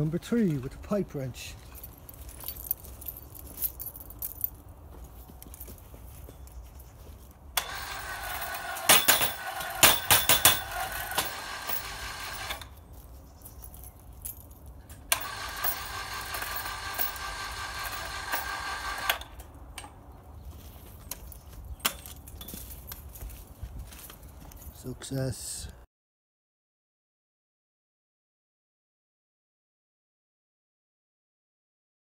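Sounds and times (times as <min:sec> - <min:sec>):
electric winch motor running: 0:07.6 - 0:12.8, 0:15.1 - 0:19.5.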